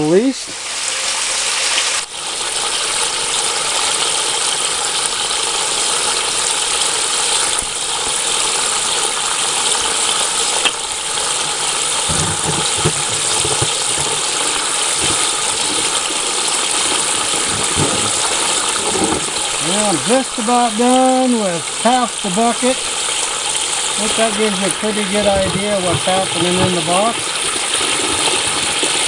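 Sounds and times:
water gushing: 0.0 - 29.0
low bumps: 11.3 - 20.4, 24.1 - 28.8.

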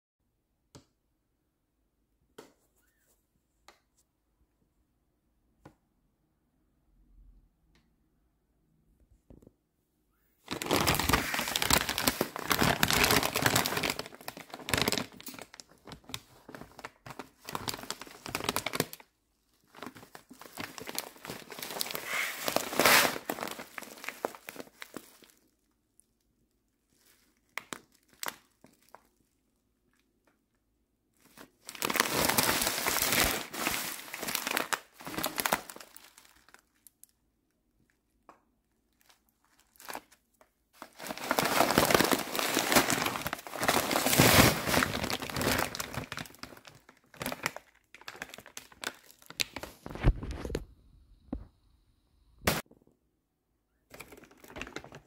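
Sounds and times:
plastic bag crinkling: 10.5 - 25.6, 26.9 - 29.3, 31.2 - 37.1, 38.9 - 50.7, 53.9 - 55.0.

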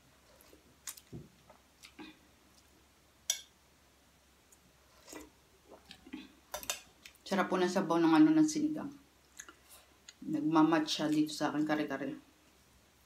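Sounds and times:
metal spoon clinking on pot: 3.3 - 3.5.

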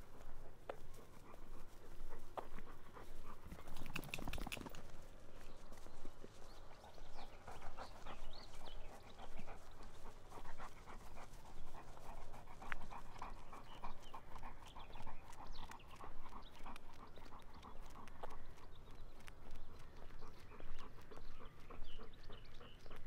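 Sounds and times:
dog panting: 0.0 - 23.0.

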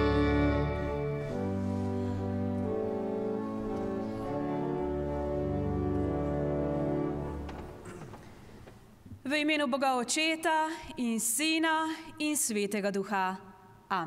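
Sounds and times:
pipe organ playing a hymn: 0.0 - 8.2.

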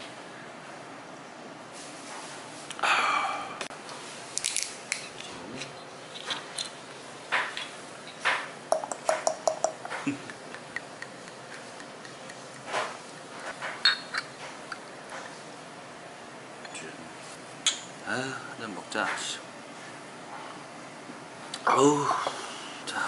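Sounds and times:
tableware clinking: 7.4 - 15.3
glass bottle clinks: 13.8 - 14.3.

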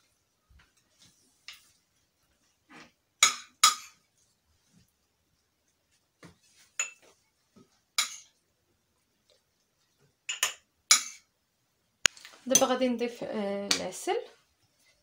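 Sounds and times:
metal spoon clinking on ceramic and glass: 6.8 - 7.0, 10.3 - 11.2.

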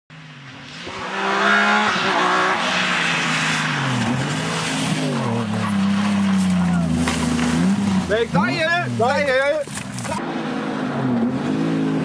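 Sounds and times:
rally car engine accelerating: 0.2 - 12.0.

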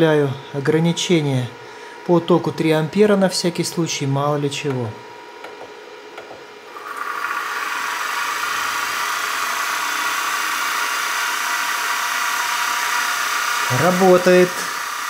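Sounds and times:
motor whirring whine: 5.5 - 15.0.

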